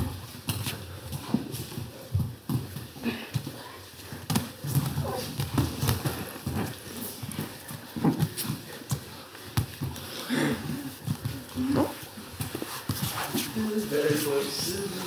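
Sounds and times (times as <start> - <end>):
bodies thumping on mats: 4.2 - 10.0
heavy breathing: 6.0 - 13.3
grunts: 10.1 - 12.0.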